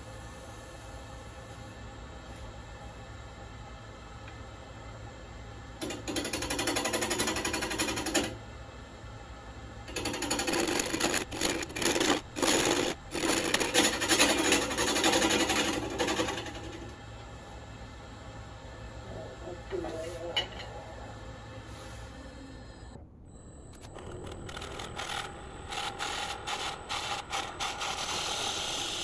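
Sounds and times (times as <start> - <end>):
turning tool cutting wood: 24.9 - 29.0
wood lathe humming: 25.0 - 29.0.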